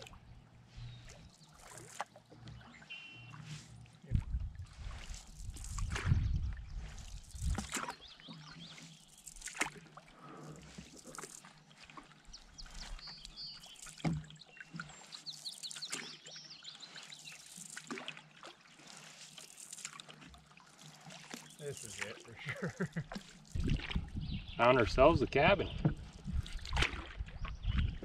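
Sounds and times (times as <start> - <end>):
canoe paddle strokes: 0.0 - 28.0
water dripping off paddle: 1.0 - 24.2, 25.8 - 27.9
small birds chirping: 5.6 - 9.5, 11.2 - 17.8, 21.2 - 22.8, 23.6 - 25.9.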